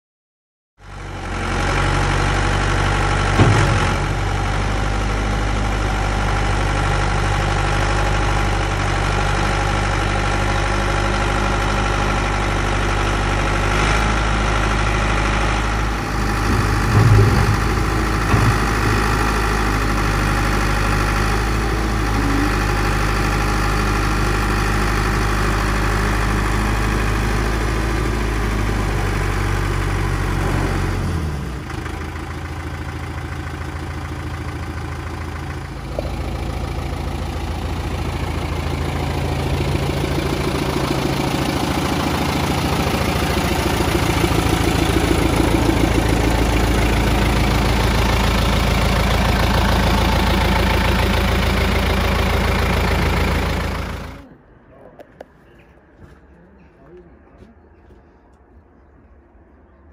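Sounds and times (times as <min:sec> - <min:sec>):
diesel engine idling: 0:00.8 - 0:58.0
machinery clunks: 0:03.2 - 0:06.2, 0:15.8 - 0:22.9.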